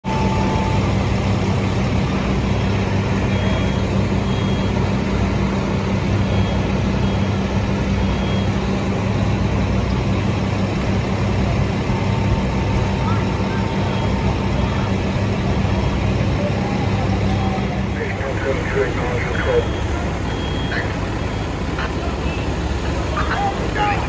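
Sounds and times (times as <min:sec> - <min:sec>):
diesel engines droning: 0:00.0 - 0:24.0
short high beeps: 0:19.0 - 0:22.5.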